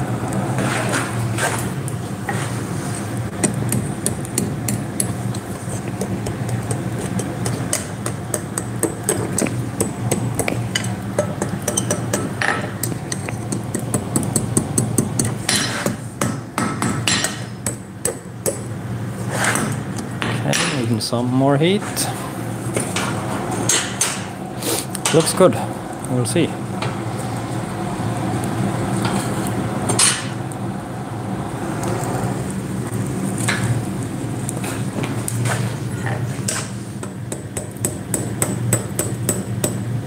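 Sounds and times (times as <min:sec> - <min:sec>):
hammer striking iron on anvil: 0:13.5 - 0:18.6, 0:37.0 - 0:39.8.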